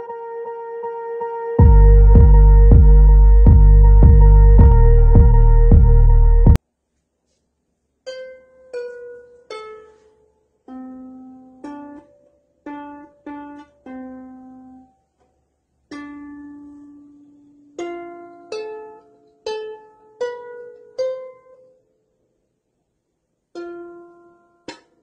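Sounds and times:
harp strings plucked: 23.6s - 25.0s.

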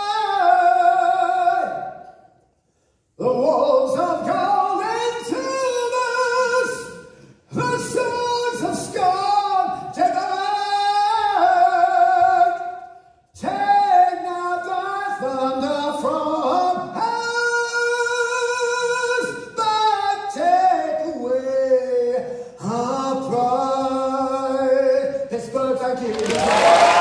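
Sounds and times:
man singing unaccompanied: 0.0s - 1.9s, 3.2s - 12.8s, 13.4s - 26.1s.

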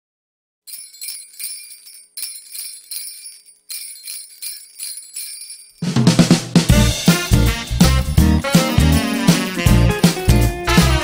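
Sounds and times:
sleigh bells shaken: 0.7s - 6.1s, 10.0s - 11.0s.

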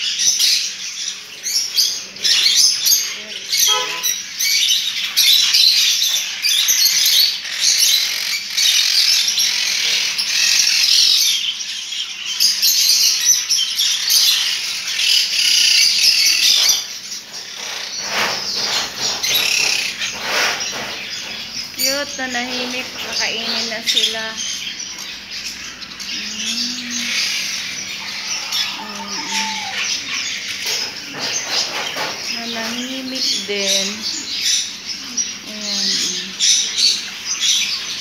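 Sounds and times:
parrots chattering and squawking: 0.0s - 38.0s
wings fluttering: 16.6s - 21.4s.

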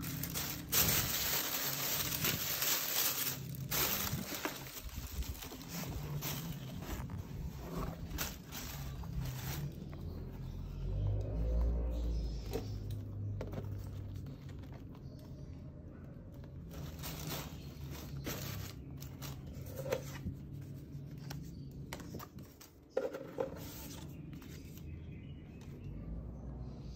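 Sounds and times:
tissue paper rustling: 0.0s - 10.4s, 16.7s - 20.2s.

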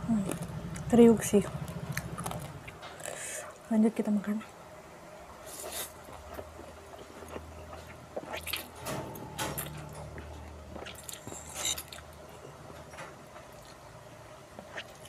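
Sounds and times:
chewing: 1.6s - 3.2s, 5.5s - 8.8s, 9.5s - 13.8s, 14.6s - 15.0s.

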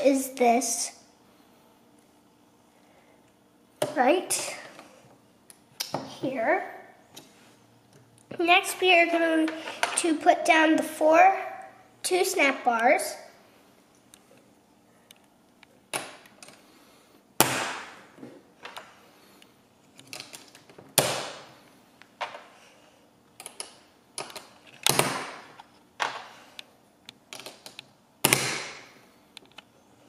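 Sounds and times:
plastic parts tapping and rattling: 23.4s - 26.3s, 27.1s - 28.4s.

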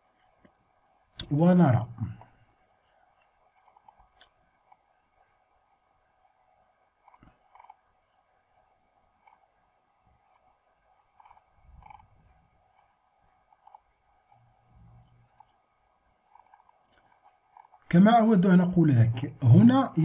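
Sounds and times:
computer mouse scroll clicks: 3.2s - 4.9s, 7.0s - 7.8s, 8.6s - 9.6s, 10.2s - 15.6s, 16.2s - 17.9s.

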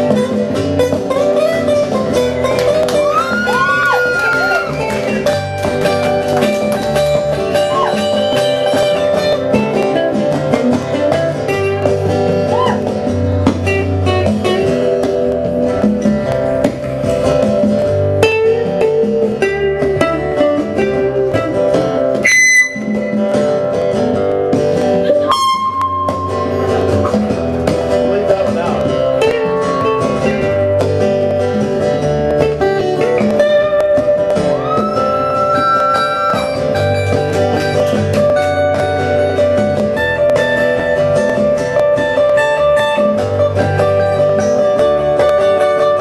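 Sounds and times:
hand drum: 0.0s - 46.0s
strummed acoustic guitars: 0.0s - 46.0s
harmonica: 34.7s - 37.8s.

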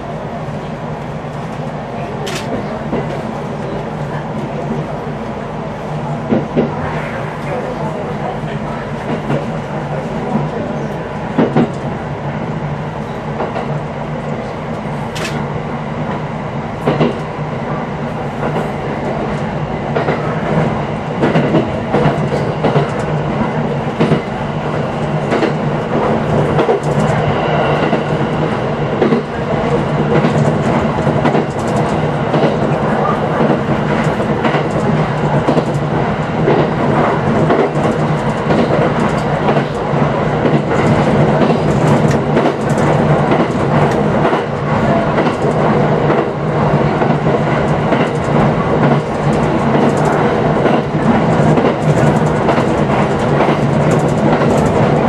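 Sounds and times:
train running hum: 0.0s - 55.0s
wheels clicking over rails: 47.0s - 55.0s.

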